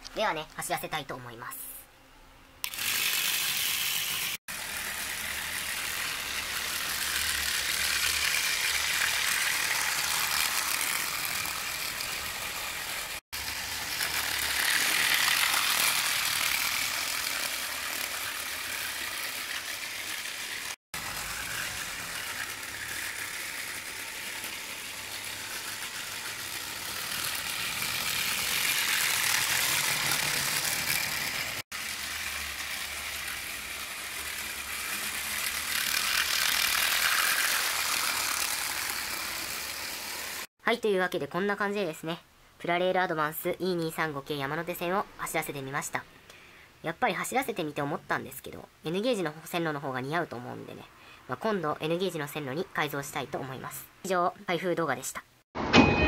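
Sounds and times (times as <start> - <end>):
toy train motor whirring: 2.6 - 40.5.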